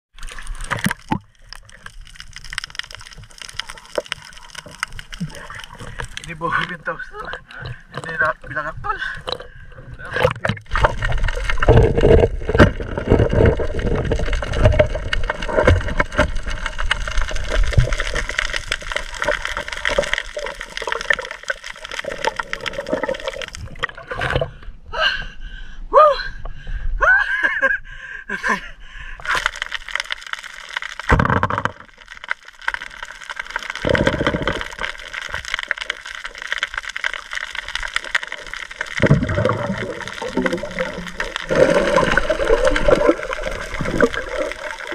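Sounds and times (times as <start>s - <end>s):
low churning of water: 0.1s - 25.4s, 31.0s - 44.9s
underwater gurgling and bubbling: 0.2s - 24.6s, 31.0s - 44.9s
water splashes: 0.2s - 24.6s, 29.2s - 44.9s.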